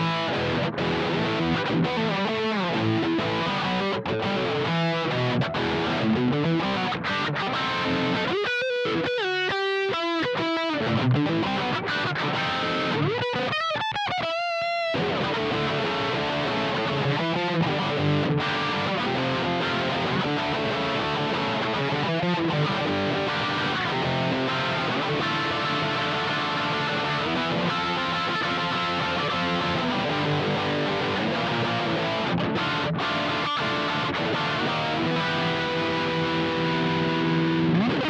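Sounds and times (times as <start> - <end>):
electric guitar playing: 0.0 - 38.0.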